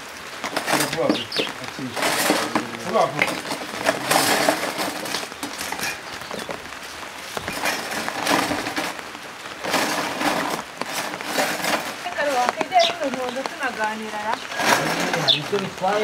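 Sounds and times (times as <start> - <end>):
water splashing and sloshing: 0.0 - 16.0
dishes clinking: 0.5 - 6.5.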